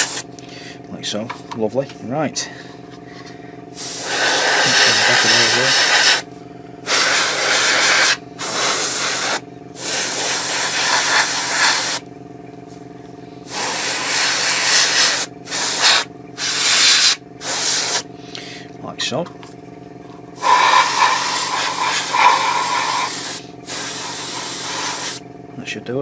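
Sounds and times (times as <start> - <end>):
airbrush spraying in hissing bursts: 0.0 - 0.2, 3.8 - 6.2, 6.8 - 12.0, 13.5 - 18.1, 20.4 - 25.2
steady low hum: 0.0 - 26.0.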